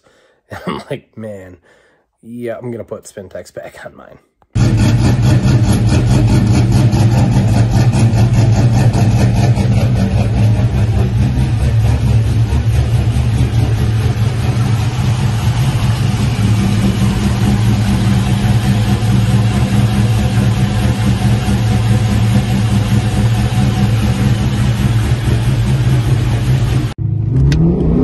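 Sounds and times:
car engine idling: 0:04.6 - 0:27.0.

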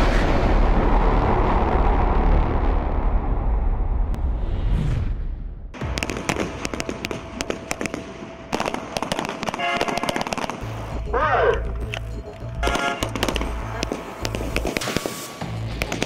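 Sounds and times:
low rumbling whoosh: 0:00.0 - 0:05.8
pistol shots: 0:05.8 - 0:10.8, 0:12.6 - 0:16.0
music with heavy bass: 0:10.6 - 0:14.8.

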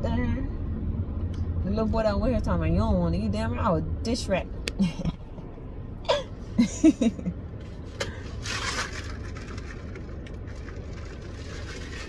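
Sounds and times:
road rumble inside car: 0:00.0 - 0:12.0
woman laughing: 0:04.8 - 0:05.3, 0:06.1 - 0:07.4.

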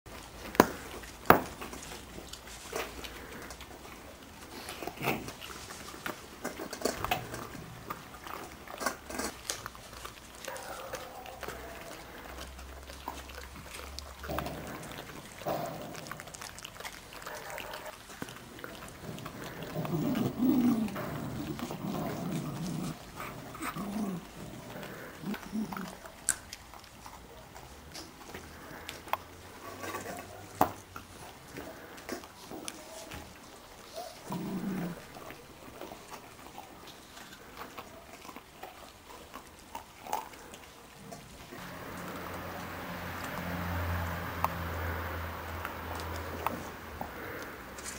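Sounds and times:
teeth scraping on bone: 0:00.5 - 0:30.3
dog growling: 0:02.7 - 0:45.0.

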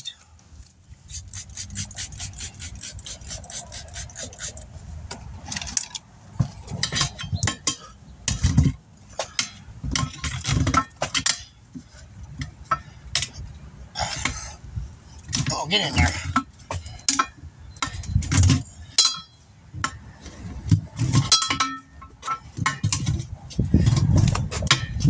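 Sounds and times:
tire irons clanking on wheel rim: 0:03.9 - 0:25.0.

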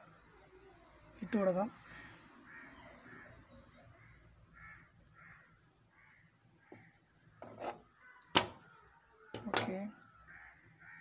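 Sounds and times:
crows cawing: 0:01.7 - 0:08.7, 0:09.3 - 0:11.0.

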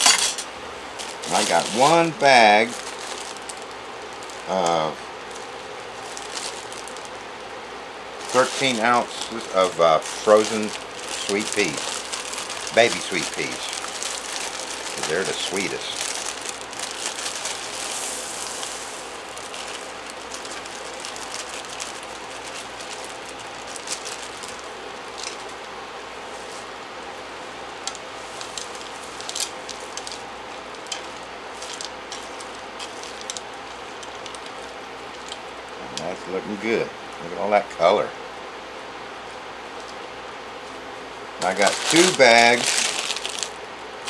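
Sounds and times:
frozen peas poured in: 0:01.0 - 0:07.1, 0:08.2 - 0:25.5, 0:41.4 - 0:43.6
vegetables sizzling in a pan: 0:08.2 - 0:24.6, 0:41.4 - 0:43.5.

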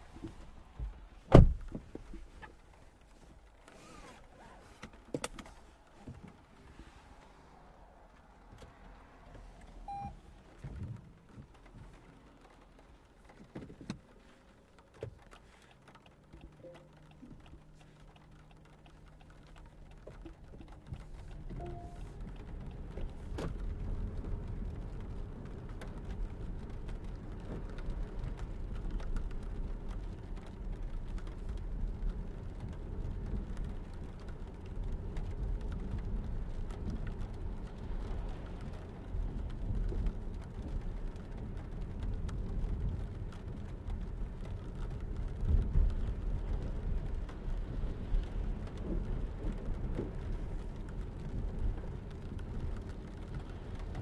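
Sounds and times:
tyres on wet road: 0:00.0 - 0:54.0.

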